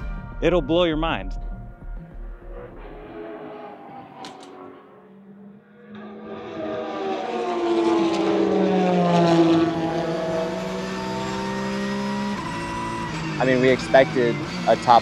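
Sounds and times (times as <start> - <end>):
race car passing at speed: 2.0 - 15.0.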